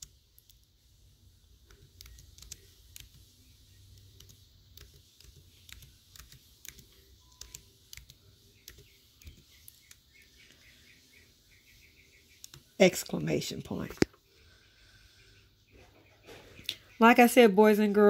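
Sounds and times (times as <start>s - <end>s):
typing on computer keyboard: 1.6s - 3.3s, 3.9s - 10.0s.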